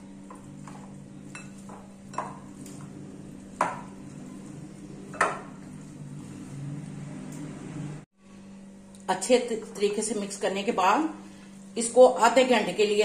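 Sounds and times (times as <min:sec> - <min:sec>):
hands mixing raw chicken: 0:00.0 - 0:07.6.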